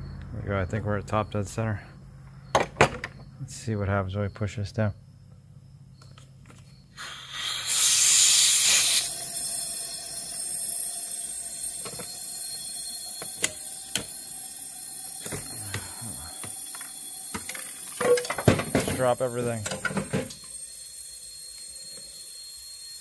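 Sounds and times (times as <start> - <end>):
faint steady whistle: 6.0 - 23.0
compressed air hissing: 6.9 - 23.0.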